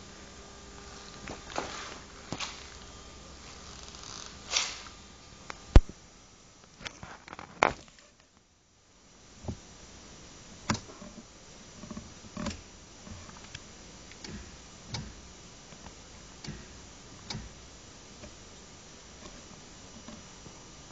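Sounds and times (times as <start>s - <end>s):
sharp clicks and knocks: 10.7s - 11.2s, 11.8s - 17.6s.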